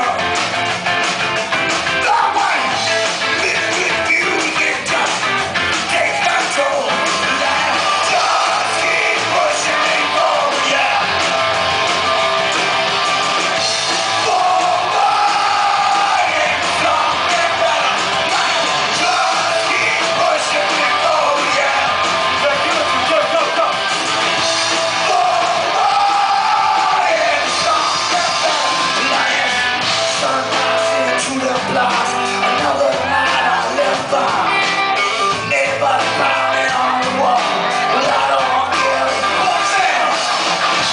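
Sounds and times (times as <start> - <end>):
rock band playing live: 0.0 - 40.9
person singing: 2.0 - 11.3, 14.1 - 23.8, 24.8 - 40.3.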